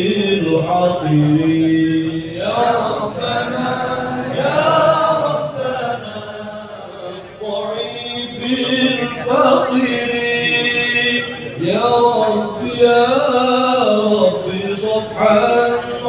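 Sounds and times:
men chanting: 0:00.0 - 0:16.0.

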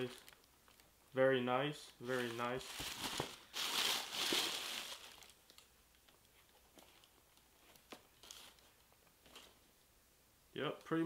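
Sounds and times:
tissue paper crinkling: 0:02.0 - 0:05.7.

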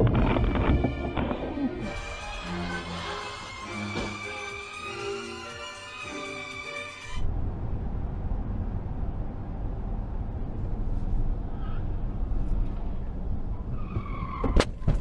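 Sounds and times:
road and wind noise inside car: 0:07.1 - 0:15.0
faint tyre squeal: 0:13.5 - 0:14.7.

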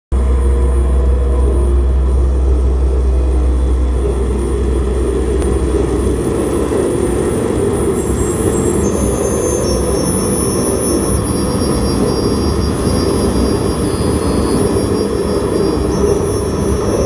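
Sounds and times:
dense synthesizer drone: 0:00.1 - 0:17.0
heavy low bass drone: 0:00.1 - 0:17.0
thin high steady tone: 0:00.2 - 0:17.0.

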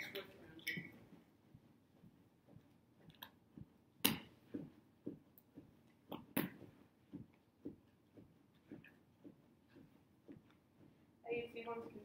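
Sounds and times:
sharp clacks: 0:02.6 - 0:05.5.

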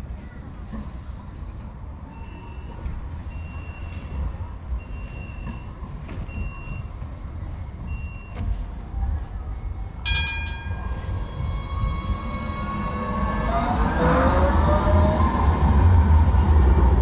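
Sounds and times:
street rumble: 0:00.0 - 0:17.0
tram bell ringing: 0:10.0 - 0:13.4.

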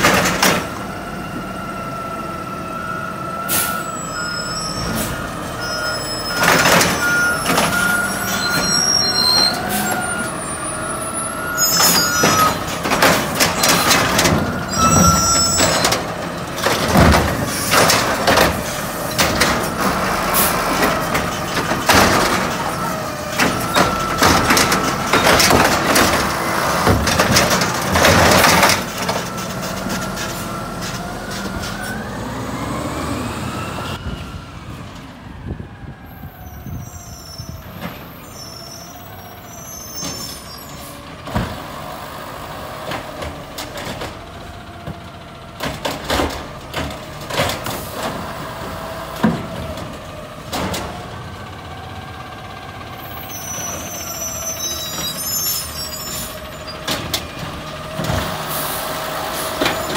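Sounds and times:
garbage truck engine: 0:00.0 - 0:59.9
metal clanks and bangs: 0:11.7 - 0:31.8.

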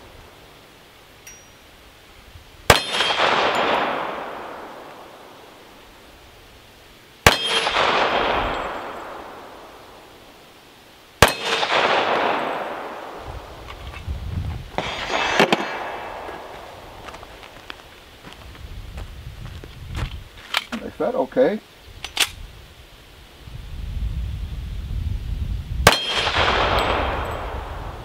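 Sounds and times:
handgun shots with echo: 0:07.3 - 0:08.8, 0:25.9 - 0:27.2.

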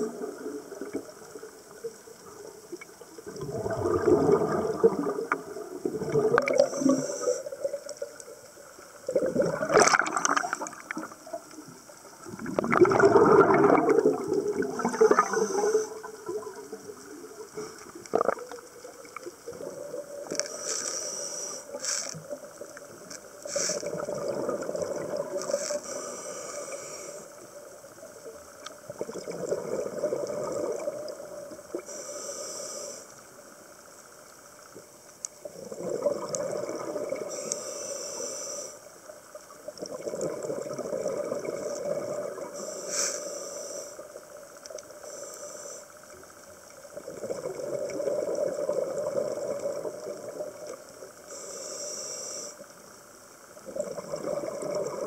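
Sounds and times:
exhaled bubbles bursting: 0:03.2 - 0:08.2, 0:09.0 - 0:11.4, 0:12.2 - 0:20.3, 0:23.8 - 0:25.6, 0:28.9 - 0:31.8, 0:35.5 - 0:37.3, 0:39.8 - 0:42.6, 0:47.0 - 0:50.7, 0:53.6 - 0:55.0
regulator hiss on inhale: 0:06.2 - 0:08.9, 0:13.9 - 0:28.7, 0:30.6 - 0:35.8, 0:36.8 - 0:39.6, 0:41.4 - 0:53.8.

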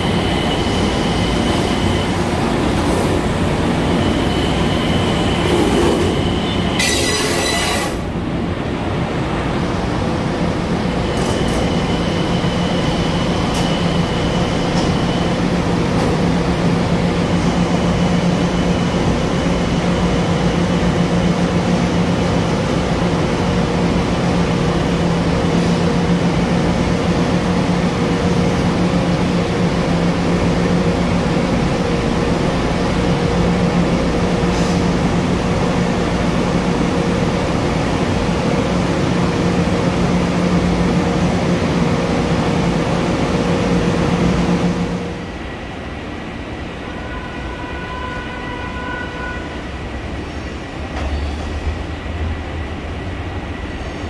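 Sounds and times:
electric train hum and rumble: 0:00.0 - 0:54.0.

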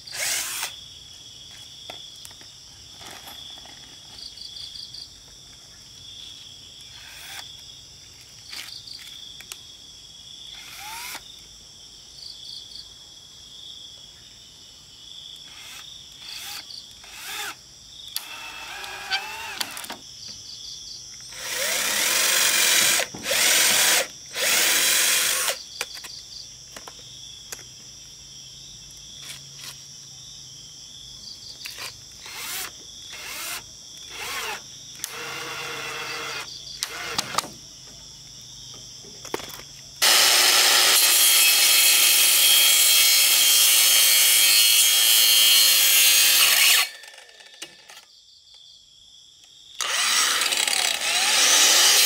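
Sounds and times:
angle grinder cutting bamboo: 0:00.0 - 0:00.8, 0:15.6 - 0:17.6, 0:18.2 - 0:19.9, 0:21.4 - 0:25.6, 0:31.7 - 0:37.5, 0:40.0 - 0:47.9, 0:49.8 - 0:52.0
insects chirring: 0:00.0 - 0:52.0
cordless drill driving screws: 0:00.1 - 0:00.7, 0:10.6 - 0:11.2, 0:15.5 - 0:17.6, 0:18.2 - 0:20.0, 0:21.3 - 0:25.6, 0:31.8 - 0:37.5, 0:40.0 - 0:48.0, 0:49.8 - 0:52.0.

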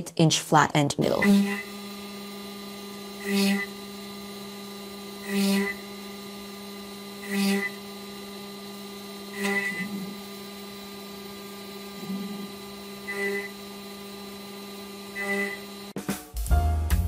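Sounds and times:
cnc spindle whine: 0:01.2 - 0:16.0.

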